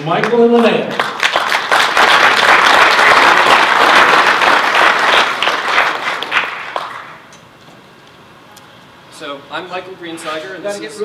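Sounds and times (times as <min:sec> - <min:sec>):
audience applauding: 0:00.2 - 0:07.3.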